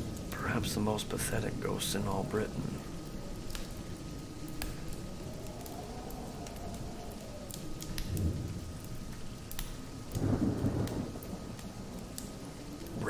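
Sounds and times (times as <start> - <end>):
low rumble of thunder: 0.0 - 13.0
steady rain: 0.0 - 13.0
sharp drip clicks: 3.0 - 13.0.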